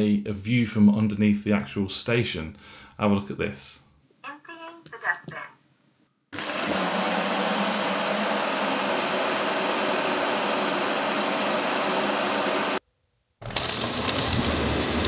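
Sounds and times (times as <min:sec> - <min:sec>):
suction motor running: 0:06.4 - 0:12.8.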